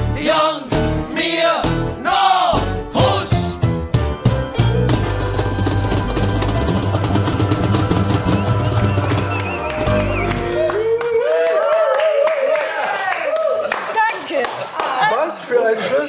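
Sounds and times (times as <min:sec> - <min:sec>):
cajon drum roll: 0:04.8 - 0:10.3.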